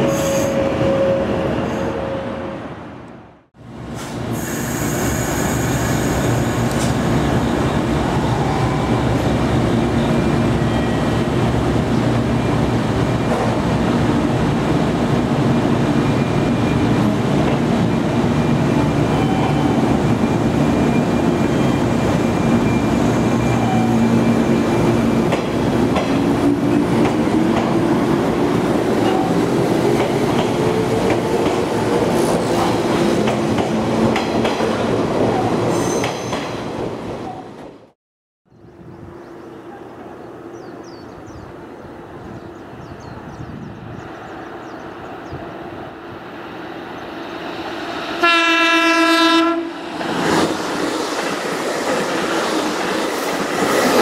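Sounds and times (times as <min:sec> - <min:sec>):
train wheels rumbling: 0:03.8 - 0:37.0, 0:44.0 - 0:54.0.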